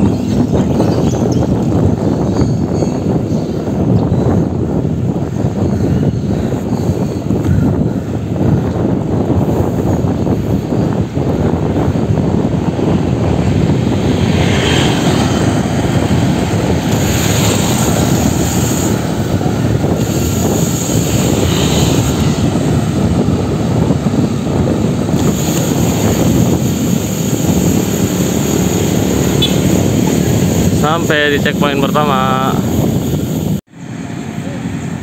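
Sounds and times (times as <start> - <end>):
wind rumble on microphone: 0.0 - 33.7
high hiss: 25.2 - 33.6.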